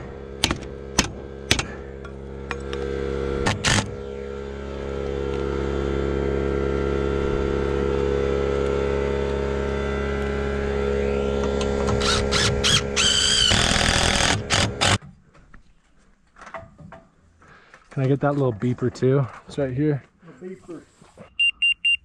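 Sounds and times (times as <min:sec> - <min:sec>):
cordless driver driving screw: 0:03.4 - 0:04.0, 0:11.5 - 0:15.0.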